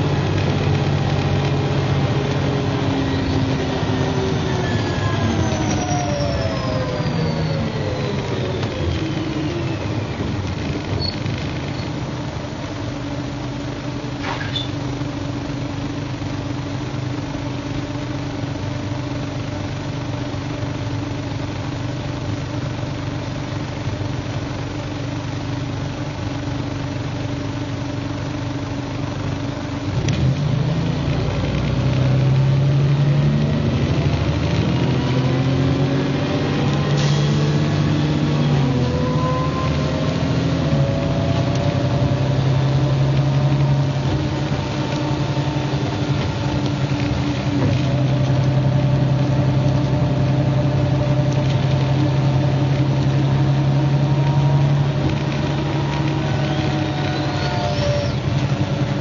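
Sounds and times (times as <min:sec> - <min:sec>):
bus engine idling and accelerating: 0:00.0 - 0:59.0.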